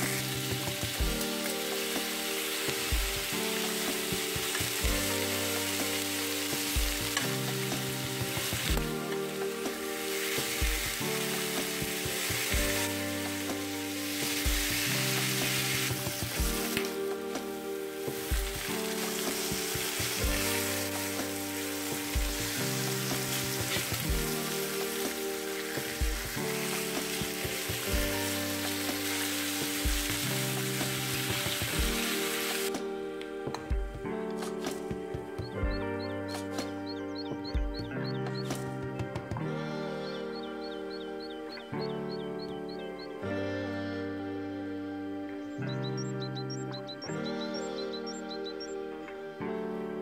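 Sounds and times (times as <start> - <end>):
meat sizzling in a frying pan: 0.0 - 32.7
background music: 0.0 - 50.0.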